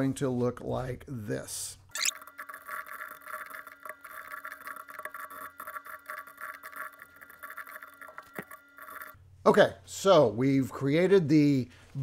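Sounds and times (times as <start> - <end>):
computer keyboard typing: 2.0 - 9.2.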